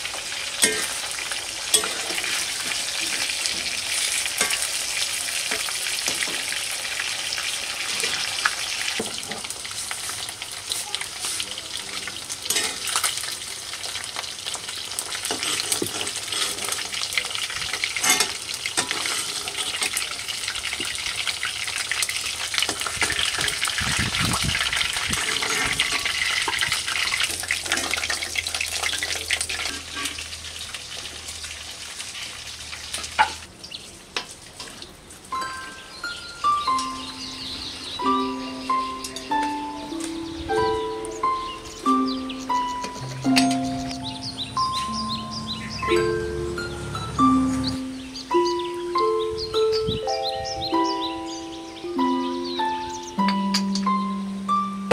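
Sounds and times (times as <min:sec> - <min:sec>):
food sizzling in oil: 0:00.0 - 0:48.3.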